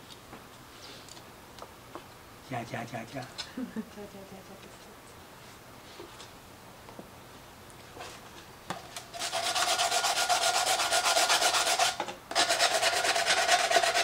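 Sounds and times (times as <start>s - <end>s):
sandpaper scrubbing tin can: 9.1s - 14.0s.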